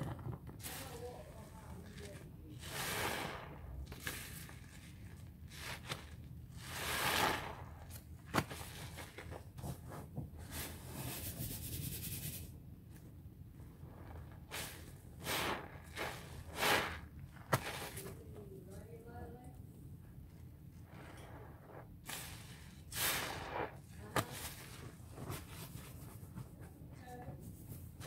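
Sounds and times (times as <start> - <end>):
sponges squelching in soapy water: 0.6 - 9.8, 13.4 - 18.4, 20.8 - 26.9.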